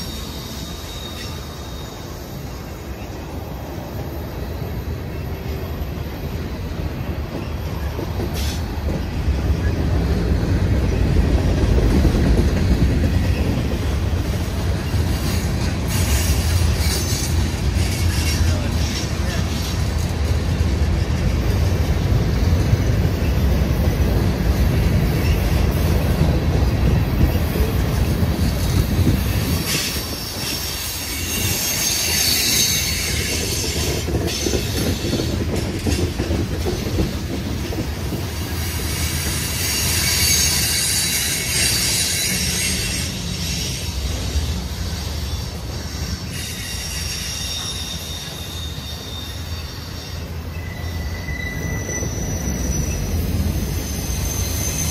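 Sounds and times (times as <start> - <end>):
high-pitched wheel squeal: 0.0 - 3.2, 27.3 - 35.4, 38.6 - 54.9
train wheels rumbling on rail: 0.0 - 54.9.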